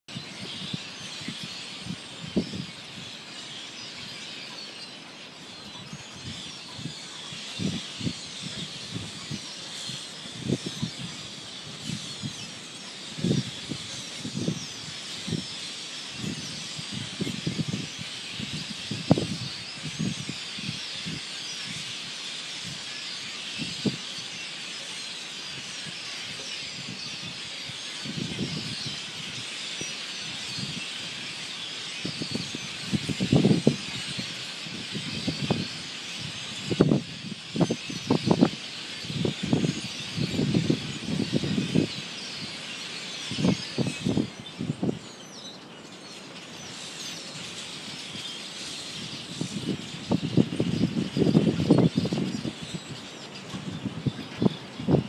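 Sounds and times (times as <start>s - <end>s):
flock of birds chirping: 0.1s - 55.0s.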